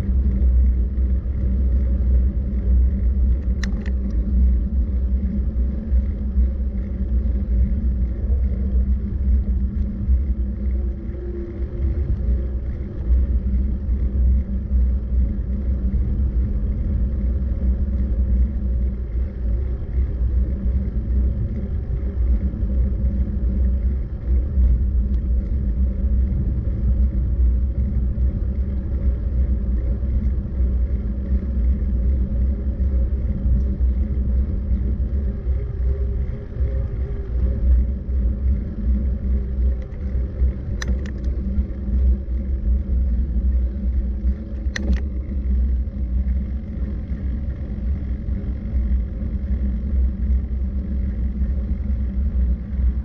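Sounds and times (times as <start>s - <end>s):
faint steady hum: 0.0s - 53.0s
road and wind rumble: 0.0s - 53.0s
sharp click: 40.8s - 41.3s, 44.7s - 45.1s.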